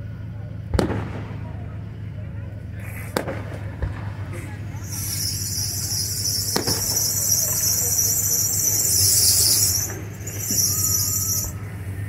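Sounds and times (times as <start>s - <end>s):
distant firework bang: 0.7s - 1.5s, 4.8s - 11.6s
high-pitched insect trilling: 4.8s - 11.6s.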